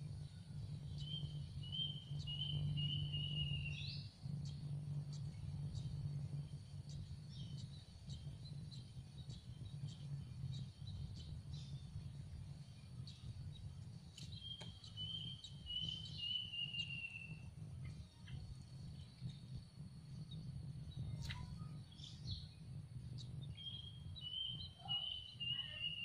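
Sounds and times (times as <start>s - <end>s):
low steady rumble: 0.0s - 26.0s
nestlings begging chirps: 23.2s - 26.0s.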